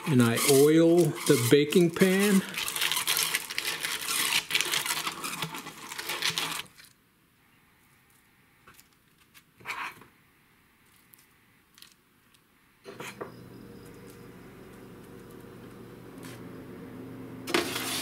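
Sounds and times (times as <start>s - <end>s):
brush scrubbing foil: 0.0s - 6.8s, 17.5s - 18.0s
fork scraping on foil: 0.0s - 6.8s, 17.5s - 18.0s.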